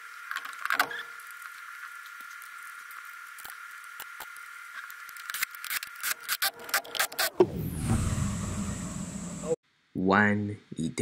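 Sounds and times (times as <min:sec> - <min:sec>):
small clicks and rubbing: 0:00.2 - 0:07.2
faint steady high whine: 0:07.4 - 0:09.6.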